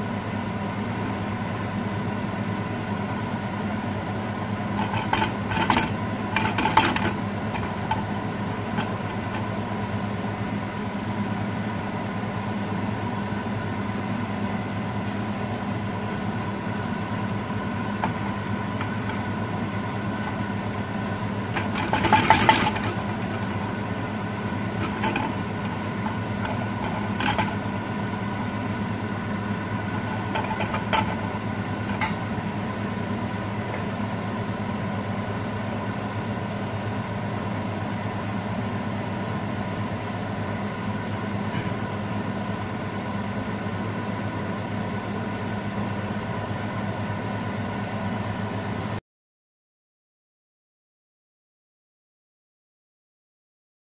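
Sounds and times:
machine hum: 0.0 - 49.0
metal spoon scraping pan: 24.8 - 27.6.

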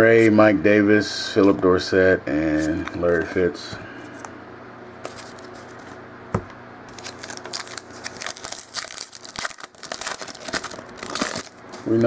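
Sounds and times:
foil card pack crinkling: 5.0 - 5.9, 6.9 - 12.0.

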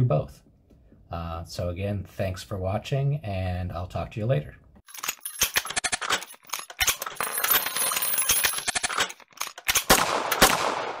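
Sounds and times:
sharp metallic clicks and clinks: 4.8 - 10.4.

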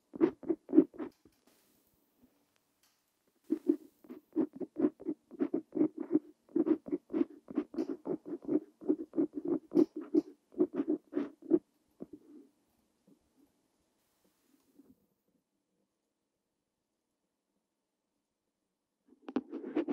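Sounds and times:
pen nib scratching on paper: 0.1 - 1.1, 3.5 - 12.2.

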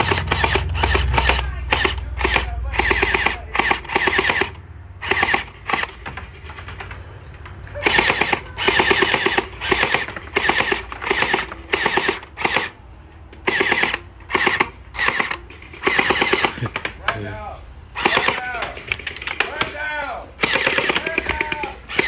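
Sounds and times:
gel ball blaster rapid-fire bursts: 0.0 - 6.0, 7.8 - 12.8, 13.5 - 16.8, 17.9 - 18.6, 20.4 - 22.0.

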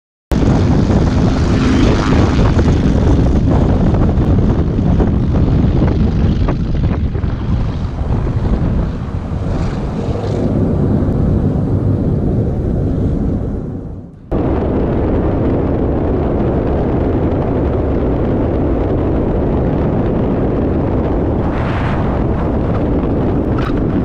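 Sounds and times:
propeller engines at high power: 0.3 - 24.0
rushing noise: 20.8 - 24.0.

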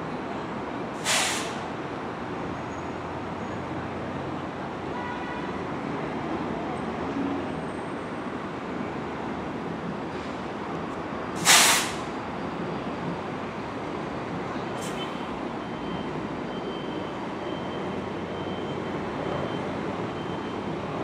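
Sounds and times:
bus engines and traffic: 0.0 - 21.0
air brakes hissing: 1.0 - 1.7, 11.4 - 12.1.

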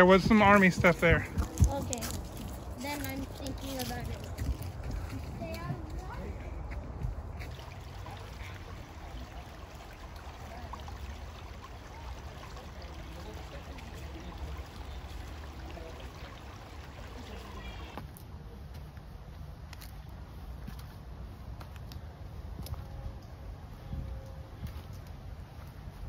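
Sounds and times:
creek water trickling: 0.0 - 18.2.

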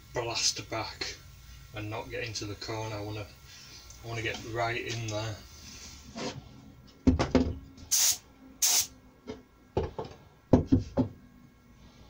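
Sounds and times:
spray gun hissing: 7.9 - 8.9.

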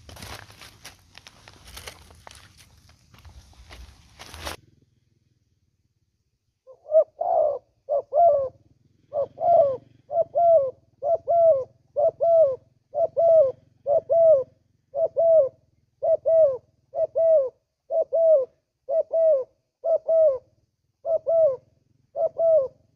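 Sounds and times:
dove cooing: 6.7 - 22.9.

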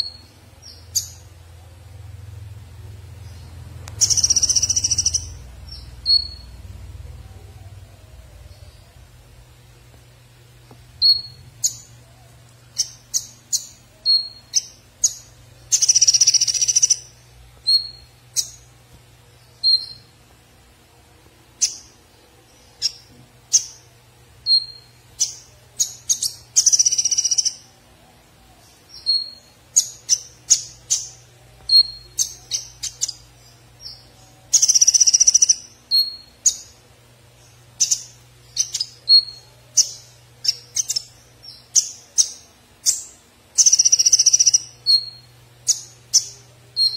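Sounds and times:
bird chirping: 0.0 - 9.8, 10.5 - 20.3, 21.5 - 46.9
faint low hum: 0.0 - 46.9
bird trilling: 4.0 - 5.4, 12.8 - 17.1, 43.6 - 46.9.

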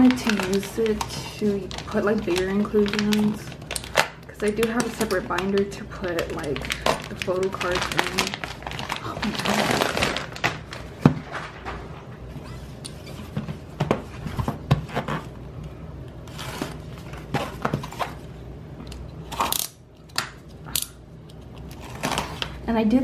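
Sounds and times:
plastic wrap crinkling: 0.0 - 13.3.

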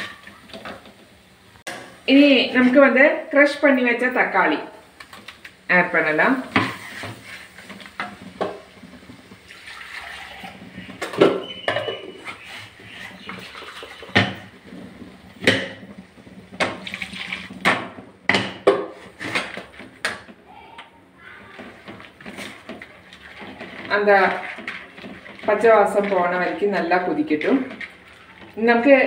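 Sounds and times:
spatula scraping and knocking pan: 6.4 - 20.4, 21.4 - 29.0.

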